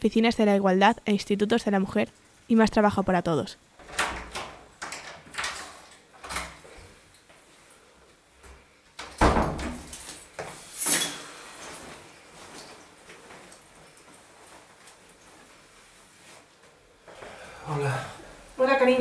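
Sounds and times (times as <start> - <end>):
door shutting thud: 9.2 - 9.9.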